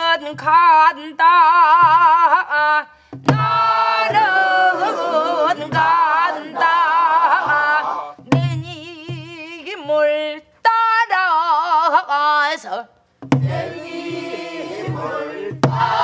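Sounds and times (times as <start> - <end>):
voices singing folk song: 0.0 - 16.0
barrel drum strokes: 13.2 - 16.0.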